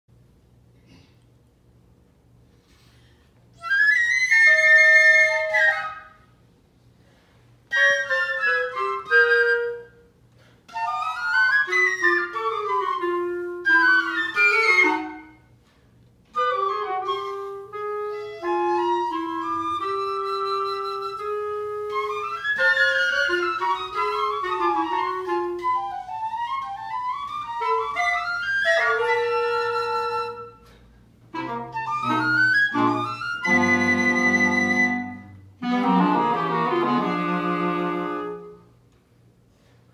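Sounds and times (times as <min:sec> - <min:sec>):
clarinet: 0:03.5 - 0:06.4, 0:07.6 - 0:15.7, 0:16.3 - 0:39.0
flute: 0:03.5 - 0:06.4, 0:07.6 - 0:15.5, 0:16.3 - 0:38.8.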